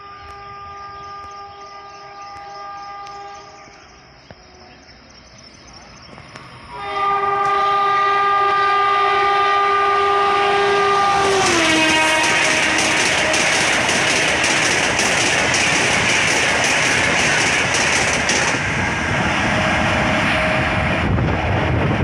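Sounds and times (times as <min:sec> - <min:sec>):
locomotive air horn blasts: 0:00.0 - 0:03.8, 0:06.7 - 0:13.4
rush of passing train: 0:00.0 - 0:22.0.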